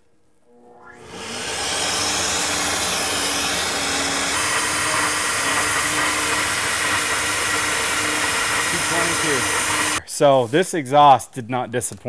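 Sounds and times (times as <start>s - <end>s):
blower motors rushing air: 0.9s - 10.0s.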